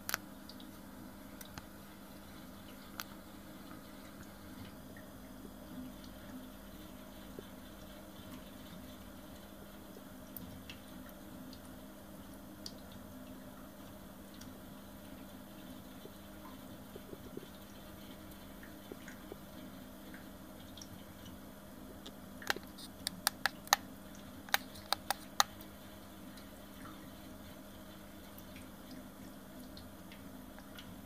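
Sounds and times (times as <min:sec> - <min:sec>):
steady low hum: 0:00.0 - 0:31.0
sharp clicks: 0:22.4 - 0:23.8, 0:24.5 - 0:25.6.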